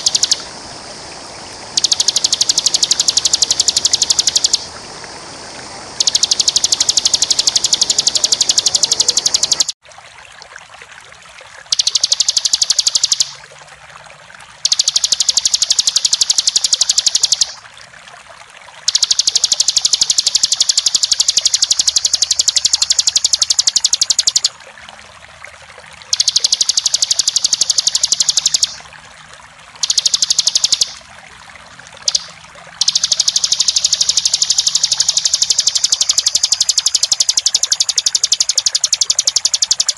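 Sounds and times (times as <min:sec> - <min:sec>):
bird singing rapid high trills: 0:00.0 - 0:00.5, 0:01.7 - 0:04.7, 0:06.0 - 0:09.8, 0:11.7 - 0:13.4, 0:14.6 - 0:17.6, 0:18.9 - 0:24.6, 0:26.1 - 0:28.8, 0:29.8 - 0:31.0, 0:32.0 - 0:39.9
running water hiss: 0:00.0 - 0:09.8, 0:10.5 - 0:39.9.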